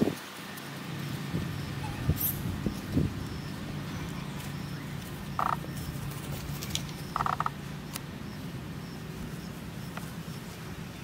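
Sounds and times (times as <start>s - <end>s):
low outdoor hum: 0.0s - 11.0s
rattling animal calls: 1.5s - 8.4s.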